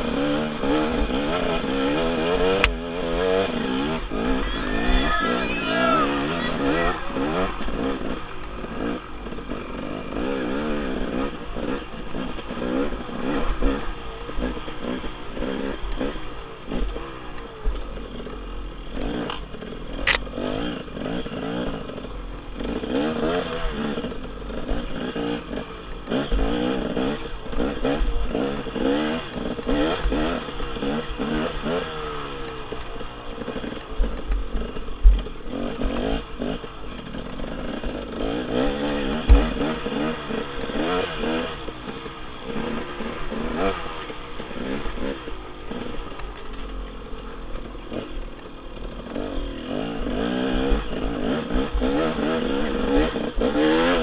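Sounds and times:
dirt bike engine revving: 0:00.0 - 0:54.0
bike clattering over bumps: 0:39.1 - 0:40.8
sharp knocks: 0:39.3 - 0:39.6.

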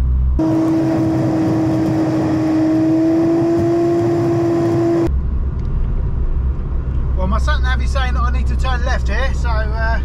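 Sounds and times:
car engine whine: 0:00.0 - 0:10.0
road and wind noise: 0:00.0 - 0:10.0.

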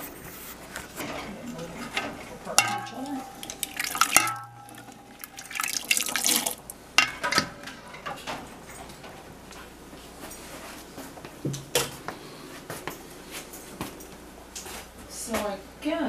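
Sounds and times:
ladle scooping and pouring liquid: 0:02.0 - 0:07.5
liquid splashing and dripping: 0:02.6 - 0:06.8.

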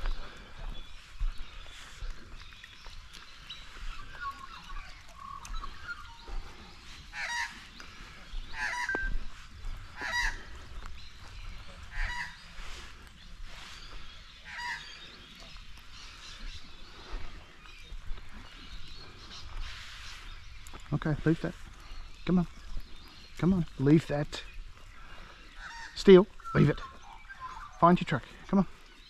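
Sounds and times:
geese honking: 0:07.0 - 0:10.7, 0:11.9 - 0:12.9, 0:14.4 - 0:15.1.

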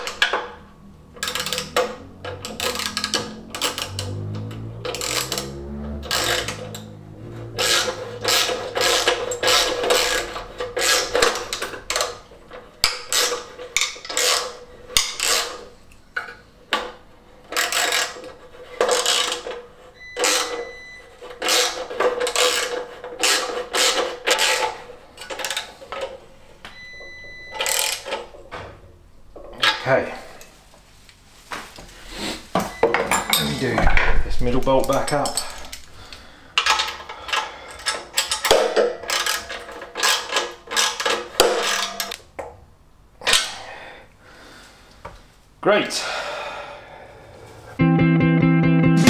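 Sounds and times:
socket ratchet clicking: 0:01.2 - 0:06.9, 0:07.5 - 0:12.2.

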